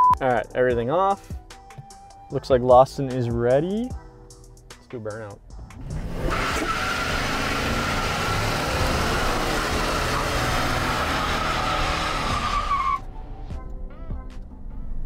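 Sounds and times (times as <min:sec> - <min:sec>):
engine revving hard: 0:05.8 - 0:13.0
tyre squeal: 0:06.2 - 0:13.1.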